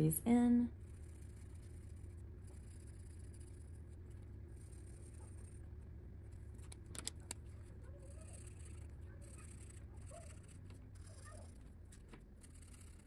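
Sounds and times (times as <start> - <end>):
low steady hum: 0.0 - 13.0
marker scratching on paper: 0.9 - 13.0
sharp clicks: 6.6 - 7.5.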